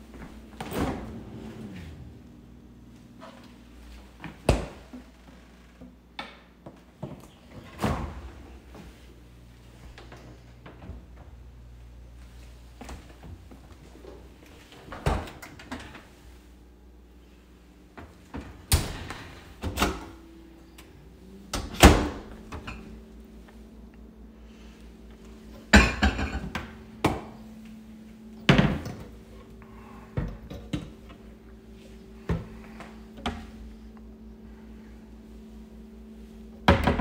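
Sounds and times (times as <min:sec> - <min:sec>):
faint steady hum: 0:00.0 - 0:37.0
cabinet doors opening and shutting: 0:00.5 - 0:02.4, 0:07.5 - 0:08.5, 0:21.5 - 0:22.9.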